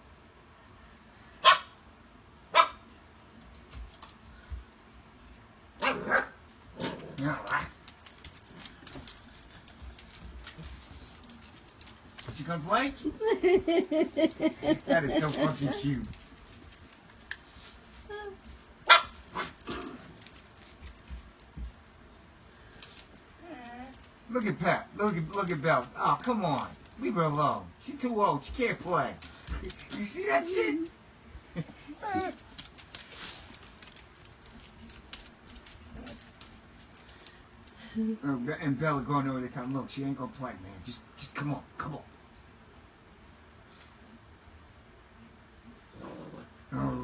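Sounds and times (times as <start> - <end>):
puppy barking: 1.4 - 1.8, 2.5 - 2.8, 5.8 - 7.8, 18.9 - 19.6.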